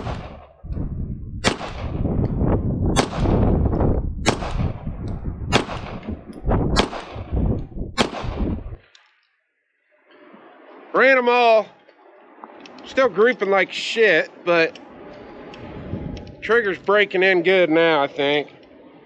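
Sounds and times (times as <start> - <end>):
pistol shots: 0.0 - 0.5, 1.4 - 2.1, 2.9 - 3.5, 4.2 - 4.9, 5.5 - 7.4, 8.0 - 8.7
faint distant gunshots: 0.0 - 0.6, 1.4 - 2.1, 2.9 - 3.5, 4.2 - 4.9, 5.5 - 8.8.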